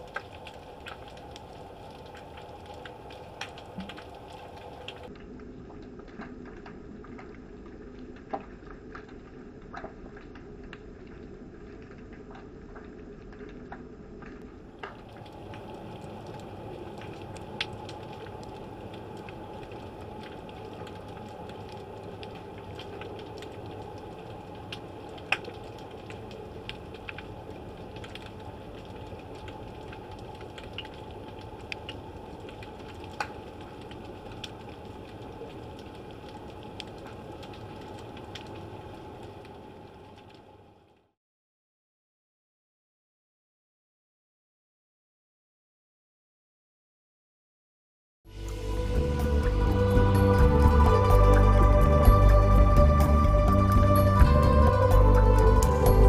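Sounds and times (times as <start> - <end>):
underwater clicks and ticks: 0.0 - 40.6, 49.2 - 56.0
underwater low rush: 14.9 - 40.7, 48.4 - 56.0.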